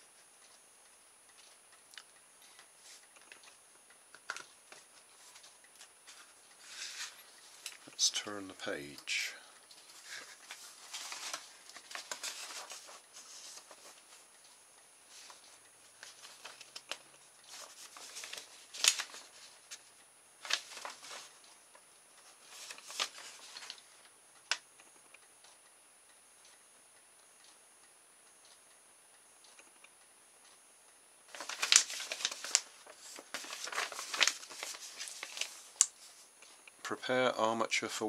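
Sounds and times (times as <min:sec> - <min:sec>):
paper pages rustling: 0:04.2 - 0:08.4, 0:09.8 - 0:14.2, 0:15.1 - 0:21.4, 0:22.3 - 0:23.9, 0:31.3 - 0:36.3.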